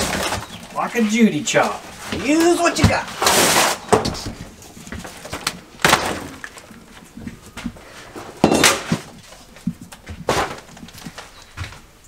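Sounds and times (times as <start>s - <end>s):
drywall crunching and scraping: 0.0s - 11.9s.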